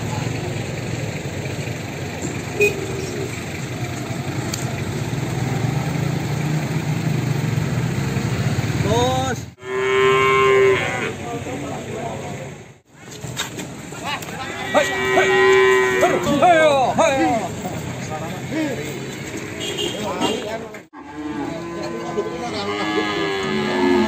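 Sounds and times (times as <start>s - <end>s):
cattle mooing: 9.6s - 11.2s, 14.4s - 16.6s, 21.0s - 24.0s.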